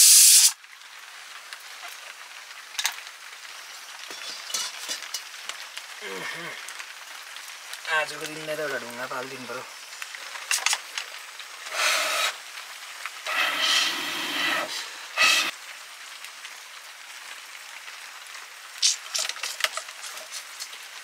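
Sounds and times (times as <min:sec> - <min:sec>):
breath blown through blowpipe: 0:11.7 - 0:12.4, 0:13.3 - 0:15.5.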